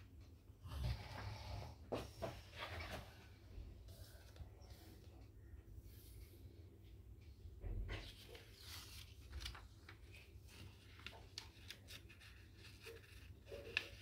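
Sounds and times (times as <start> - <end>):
paper rustling and crinkling: 7.9 - 14.0.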